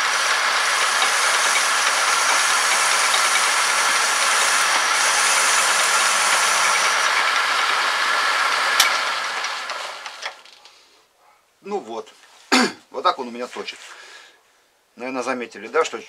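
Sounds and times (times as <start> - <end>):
metal lathe cutting: 0.0 - 10.4
lathe click: 0.0 - 10.6.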